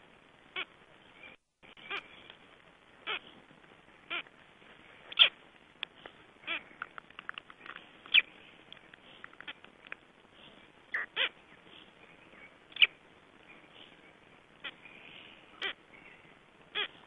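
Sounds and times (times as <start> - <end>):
chicks calling inside eggs: 5.1 - 5.4, 10.9 - 11.4, 12.7 - 13.0
small clicks: 6.8 - 10.1.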